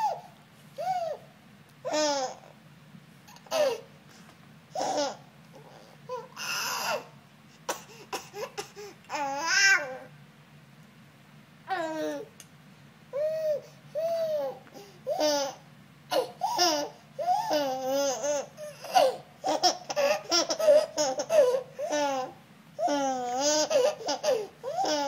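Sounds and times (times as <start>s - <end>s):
baby cooing: 0.0s - 1.3s, 1.9s - 2.6s, 3.3s - 3.9s, 4.8s - 7.1s, 7.7s - 10.1s, 11.7s - 12.3s, 13.2s - 25.0s
baby laughing: 3.3s - 3.9s, 13.2s - 25.0s.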